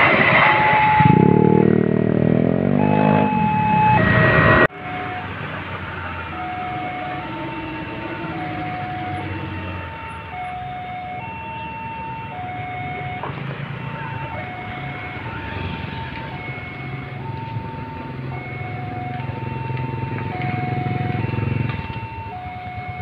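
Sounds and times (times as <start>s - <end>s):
motorcycle engine: 0.0s - 10.8s, 12.3s - 23.0s
level crossing two-tone alarm: 0.2s - 1.9s, 2.5s - 23.0s
light truck engine: 4.8s - 23.0s.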